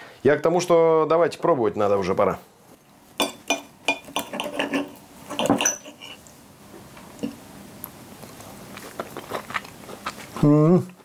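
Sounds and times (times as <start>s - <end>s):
knife and fork clinking on a plate: 3.2s - 6.2s.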